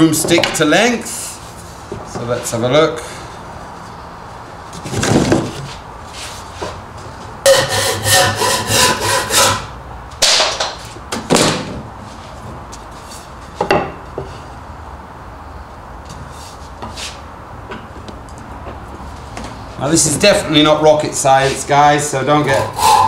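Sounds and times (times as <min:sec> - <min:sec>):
hand saw cutting wood: 0:07.5 - 0:09.7.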